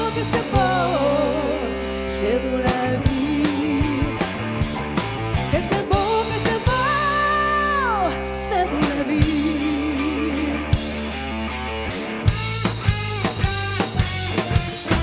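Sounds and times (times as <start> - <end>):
woman singing: 0.0 - 4.3, 5.5 - 10.8
pop-rock band playing: 0.0 - 15.0.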